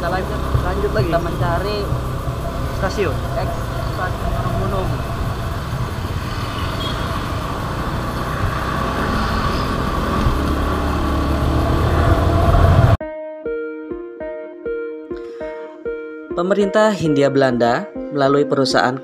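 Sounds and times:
motorcycle engine: 0.0s - 13.0s
passing traffic: 0.0s - 13.0s
wind noise: 0.0s - 13.0s.

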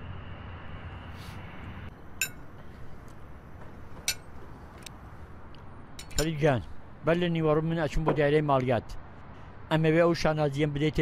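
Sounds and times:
china clinking: 2.2s - 2.5s, 4.1s - 4.3s, 6.0s - 6.4s.

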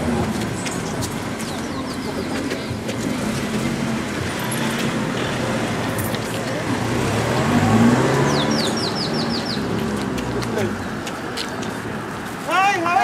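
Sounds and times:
bird chirping: 8.2s - 9.8s.

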